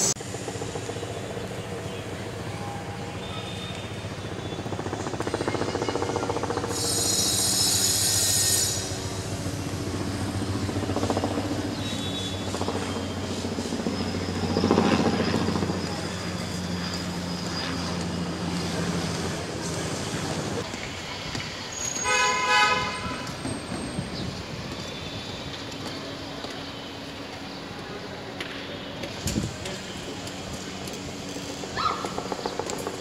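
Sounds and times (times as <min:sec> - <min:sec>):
traffic engine hum: 0:00.0 - 0:33.0
high-pitched squeal: 0:06.6 - 0:09.7.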